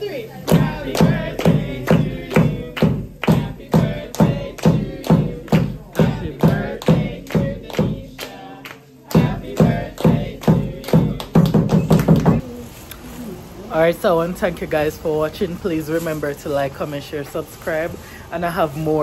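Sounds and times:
group singing a birthday song: 0:00.0 - 0:12.4
steady hand claps: 0:00.5 - 0:12.4.

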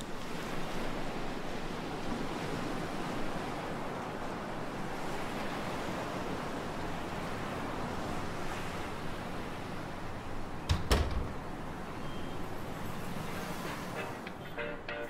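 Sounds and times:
steady rushing ambient noise: 0:11.3 - 0:15.0.

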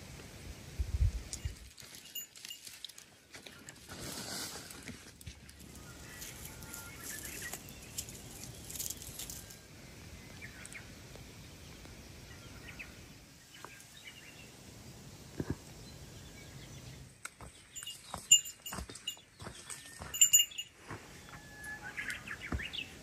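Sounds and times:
bird chirps: 0:05.6 - 0:14.6, 0:15.7 - 0:23.0.

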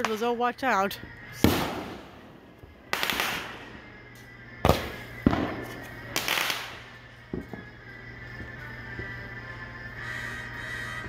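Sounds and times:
fireworks exploding: 0:01.4 - 0:03.9, 0:04.6 - 0:07.7.

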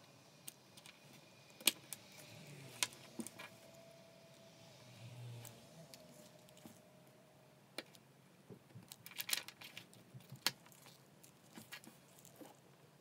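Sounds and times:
small plastic clicks: 0:08.7 - 0:12.5.

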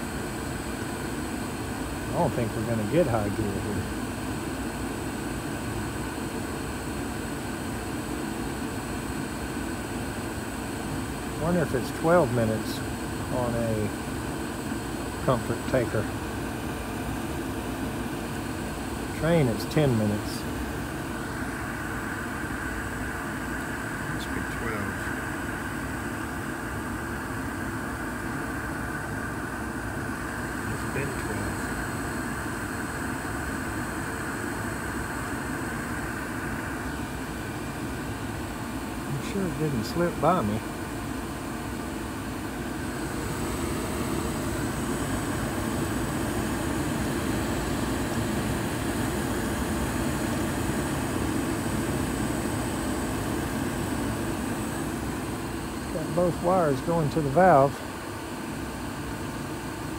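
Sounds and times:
gas furnace rushing hum: 0:00.0 - 0:59.9.

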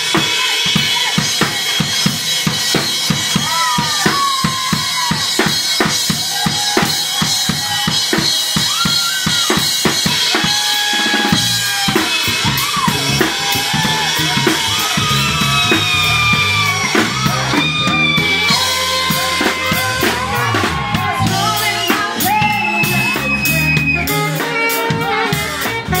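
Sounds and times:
drum kit fast beat: 0:00.0 - 0:26.0
keyboard: 0:00.0 - 0:26.0
electric bass: 0:11.2 - 0:26.0.

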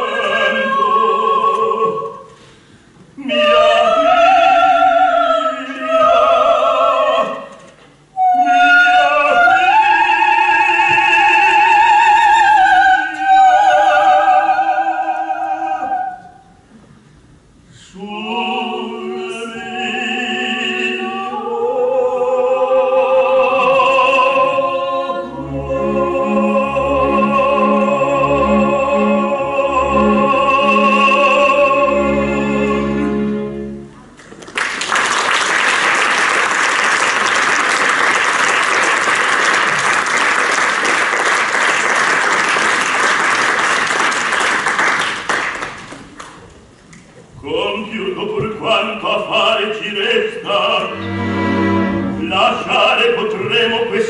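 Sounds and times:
soprano and baritone singing: 0:00.0 - 0:02.4, 0:03.2 - 0:16.6, 0:17.7 - 0:33.8, 0:47.4 - 0:54.0
orchestra chords: 0:22.7 - 0:34.2, 0:50.0 - 0:54.0
audience applause: 0:34.2 - 0:46.4.

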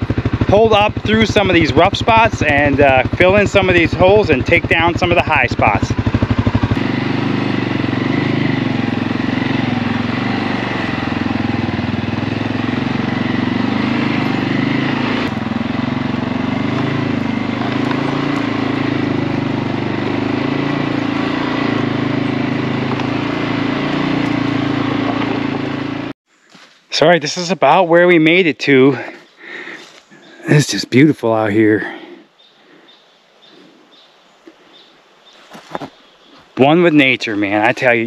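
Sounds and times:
atv engine running: 0:00.0 - 0:26.2, 0:37.1 - 0:38.0.

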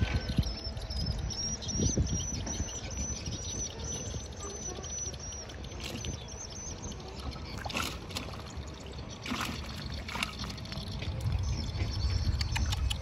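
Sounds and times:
water trickling and splashing: 0:04.9 - 0:13.0.

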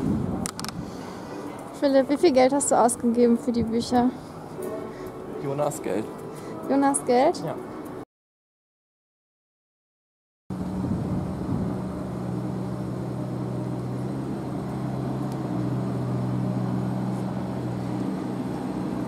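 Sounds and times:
vehicle engine idling: 0:10.6 - 0:19.0.

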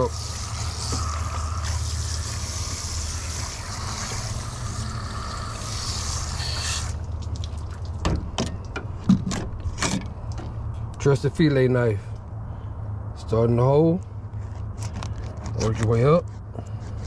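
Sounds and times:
hose spraying water: 0:00.0 - 0:07.6.

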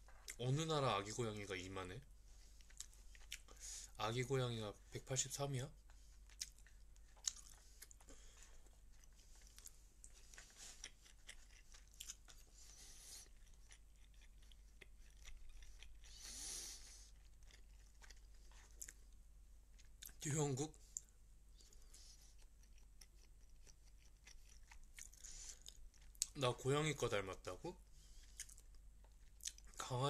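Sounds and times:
soft breathy hiss: 0:02.2 - 0:06.2, 0:12.4 - 0:13.4, 0:16.1 - 0:17.2, 0:25.2 - 0:25.8
person chewing and crunching: 0:02.6 - 0:03.6, 0:06.1 - 0:19.0, 0:21.0 - 0:26.4, 0:28.2 - 0:29.8.

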